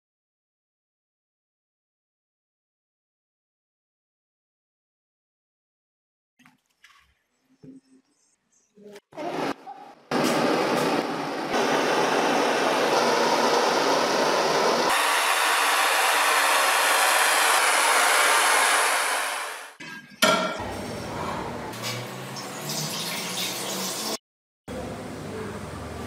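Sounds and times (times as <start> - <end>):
liquid splashing: 6.4 - 7.3
blowtorch flame: 10.1 - 19.8.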